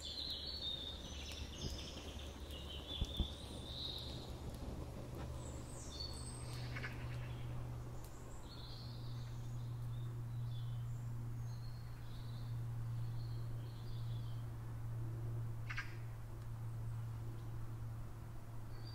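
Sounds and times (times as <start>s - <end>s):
birds chirping faintly: 0.0s - 14.6s
steady low hum: 0.0s - 18.9s.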